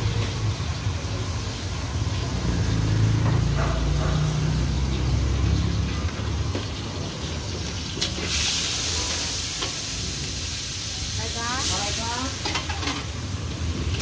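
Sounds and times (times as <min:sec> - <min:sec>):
vehicle engine running: 0:01.8 - 0:06.5.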